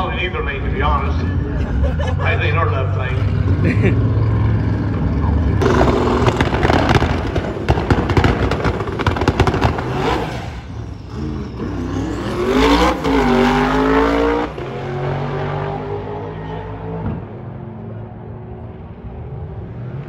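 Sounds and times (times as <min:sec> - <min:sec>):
drag car engines roaring: 0:00.0 - 0:20.0
engine rising in pitch: 0:10.1 - 0:17.1.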